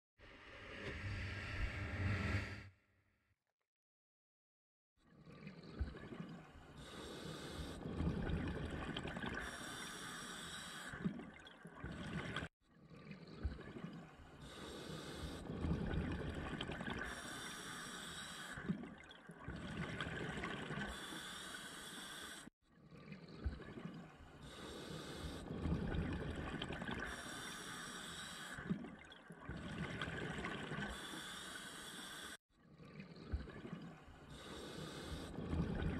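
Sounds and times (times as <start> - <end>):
exhaled bubbles gurgling: 5.3 - 35.9
diver breathing through regulator: 6.7 - 8.6, 9.3 - 11.2, 14.4 - 22.5, 24.4 - 28.9, 30.2 - 32.4, 34.3 - 35.9.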